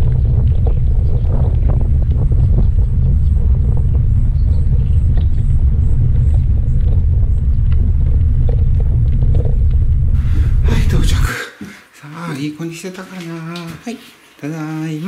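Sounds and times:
wind buffeting microphone: 0.0s - 11.4s.

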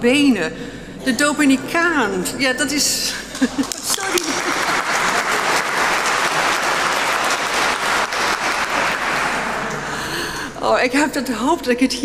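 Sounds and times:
audience applauding: 3.3s - 10.0s.

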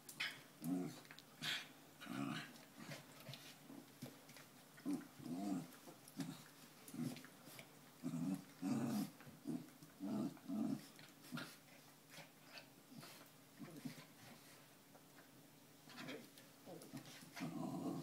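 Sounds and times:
dogs growling: 0.6s - 3.3s, 4.8s - 11.6s, 17.2s - 18.0s.

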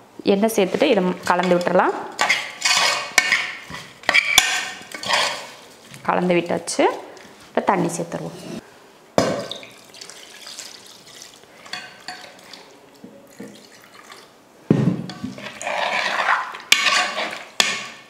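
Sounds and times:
spoon stirring and sloshing in pot: 0.4s - 8.6s, 9.2s - 14.4s, 15.1s - 18.0s
faint splashing: 9.4s - 14.3s
water pouring into a pot: 9.5s - 11.5s, 13.3s - 14.3s.

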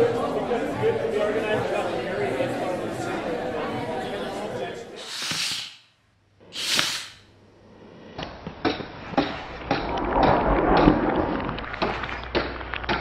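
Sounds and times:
short swoosh: 9.4s - 12.0s
low rumble: 9.4s - 12.4s.

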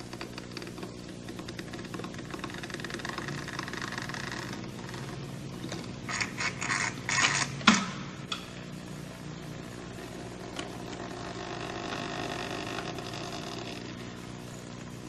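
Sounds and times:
sculpture mechanism moving: 0.0s - 8.0s
steady low hum: 0.0s - 15.0s.

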